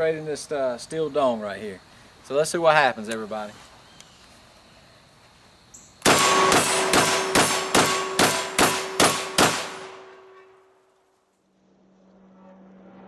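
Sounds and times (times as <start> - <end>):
shotgun shots: 6.0 - 10.4
steel target ringing: 6.1 - 10.7.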